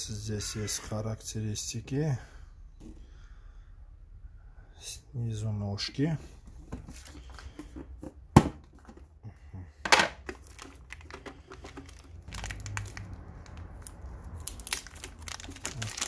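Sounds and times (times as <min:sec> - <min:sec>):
plastic wrap crinkling: 0:10.2 - 0:16.0.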